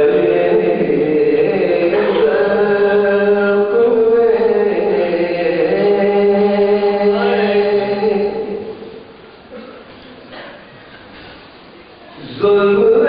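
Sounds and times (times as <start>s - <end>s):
man singing mourning elegy: 0.0s - 8.6s.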